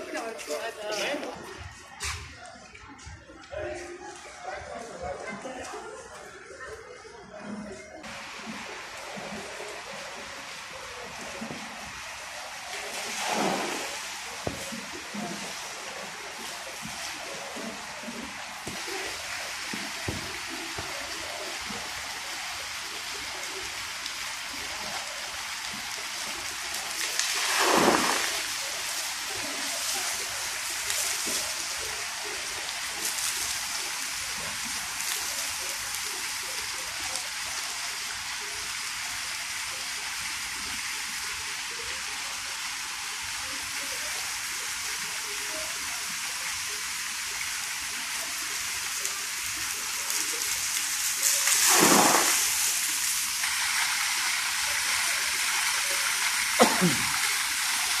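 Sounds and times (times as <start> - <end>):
water splashing onto wet paving: 8.1 - 38.5, 44.9 - 58.0.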